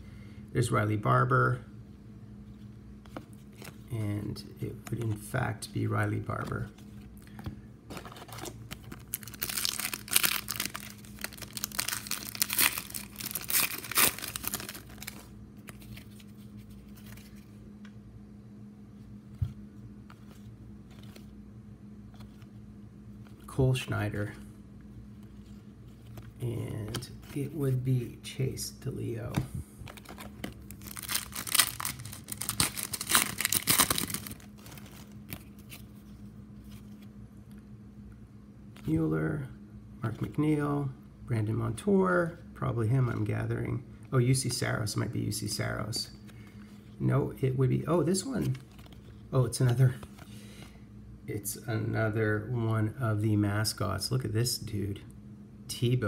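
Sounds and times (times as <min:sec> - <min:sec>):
cards being handled: 0:03.0 - 0:03.9, 0:04.6 - 0:18.0, 0:19.0 - 0:21.4, 0:22.1 - 0:22.6, 0:25.2 - 0:28.2, 0:29.3 - 0:37.1, 0:47.9 - 0:50.7
wrapper crinkling and tearing: 0:08.0 - 0:16.3, 0:29.9 - 0:35.8.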